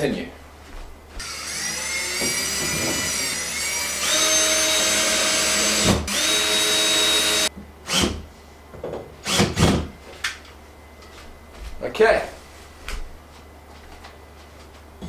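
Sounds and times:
electric drill whining: 1.2s - 8.0s.

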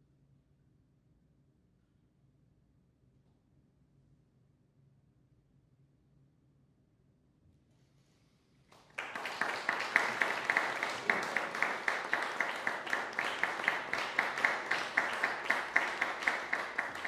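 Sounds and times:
audience applauding: 8.7s - 17.0s
louder rhythmic claps: 8.7s - 17.0s.

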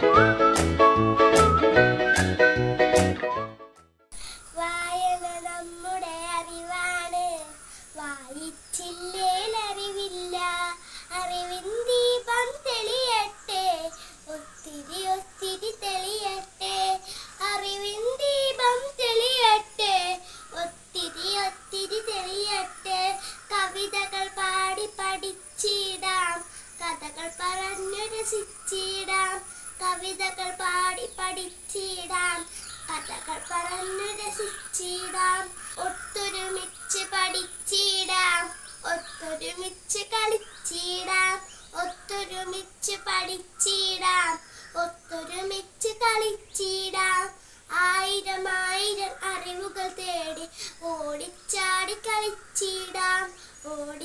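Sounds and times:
girl singing: 4.1s - 54.0s.

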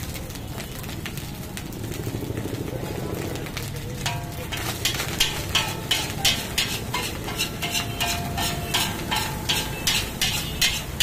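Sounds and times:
metal spatula scraping a wok: 4.0s - 11.0s
ringing metal tones: 4.0s - 11.0s.

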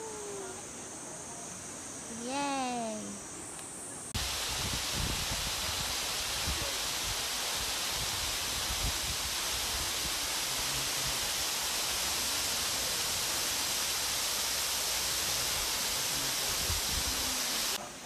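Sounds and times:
waterfall rushing: 4.2s - 17.8s.

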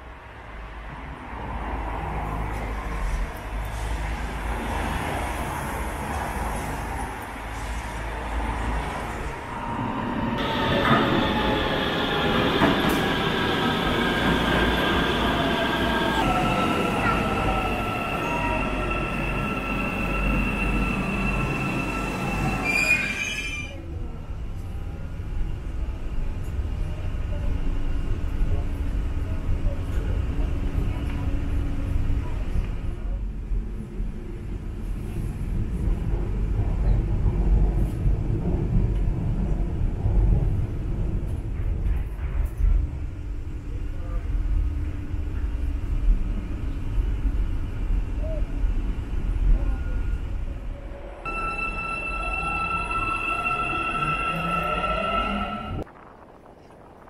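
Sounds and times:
train rumble: 0.0s - 57.0s
train whining and squealing: 7.5s - 23.9s, 49.5s - 56.0s.

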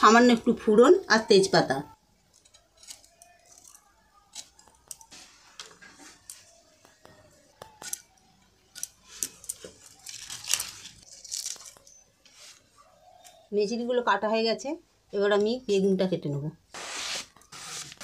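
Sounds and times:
stems and leaves crackling: 2.3s - 13.4s
stems snapping against a blade: 7.6s - 8.1s.

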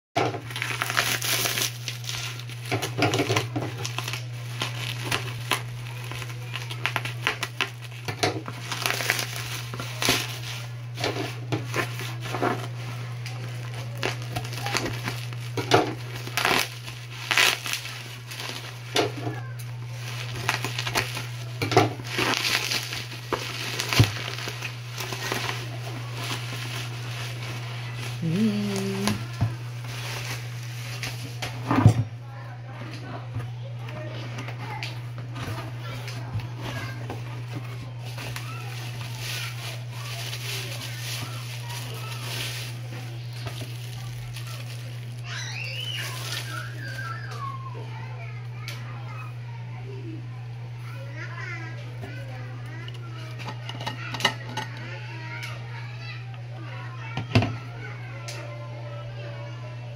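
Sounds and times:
bubble wrap crinkling: 0.2s - 32.9s, 33.5s - 48.7s.

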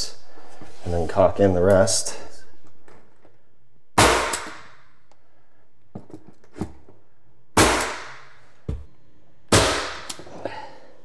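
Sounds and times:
nail gun firing: 4.0s - 4.7s, 7.6s - 8.2s.

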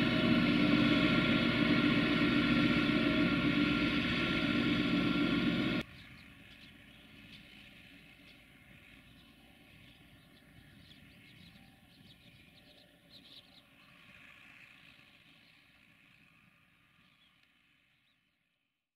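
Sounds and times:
tractor diesel engine: 0.0s - 11.4s.

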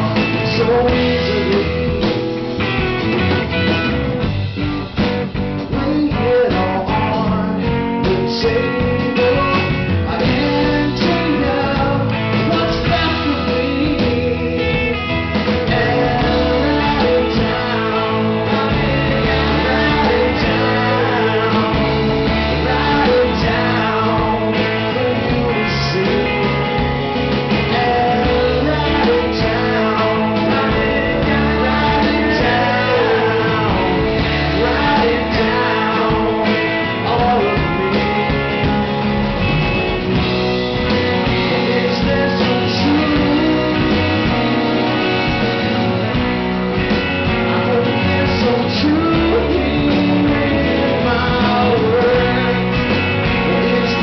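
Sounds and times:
man singing: 0.0s - 2.3s, 5.5s - 39.8s, 40.7s - 45.6s, 47.0s - 54.0s
drums: 0.0s - 54.0s
electric bass: 0.0s - 54.0s
electric guitar: 0.0s - 54.0s
strummed acoustic guitar: 0.0s - 54.0s.

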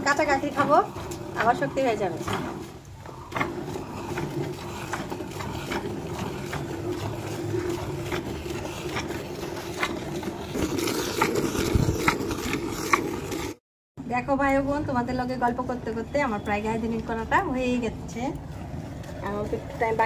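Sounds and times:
milk squirting into bucket: 0.0s - 13.6s.

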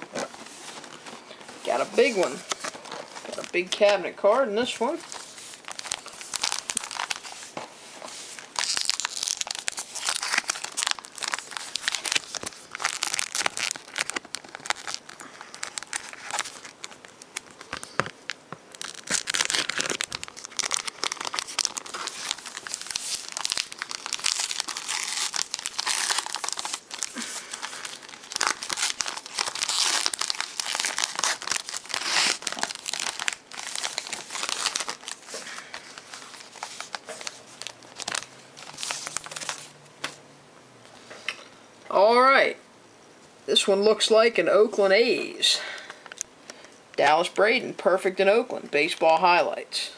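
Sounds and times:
paper wrapper crinkling and tearing: 4.6s - 40.2s.

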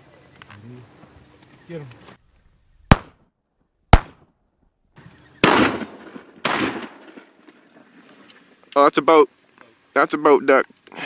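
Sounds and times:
shotgun shots: 2.9s - 3.2s, 3.9s - 4.3s, 5.4s - 7.4s.

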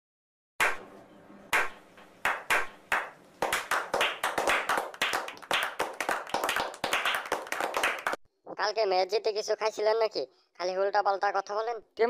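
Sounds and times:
people clapping: 0.6s - 0.9s, 1.5s - 8.2s.

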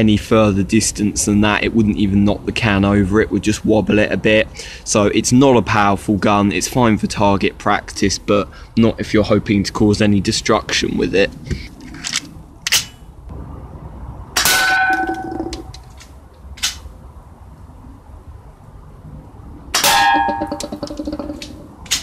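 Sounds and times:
bbs clanging on metal cans: 19.8s - 22.0s.

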